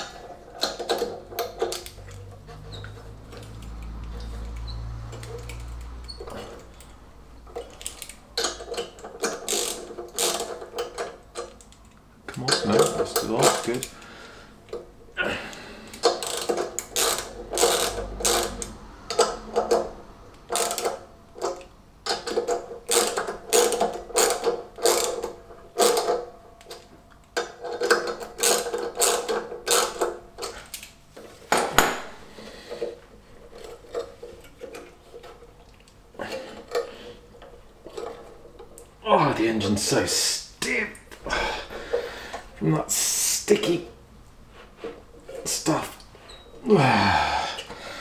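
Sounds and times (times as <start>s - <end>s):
hand ratchet clicking: 0.0s - 14.1s, 15.5s - 30.9s
handling of pulley: 0.0s - 39.0s.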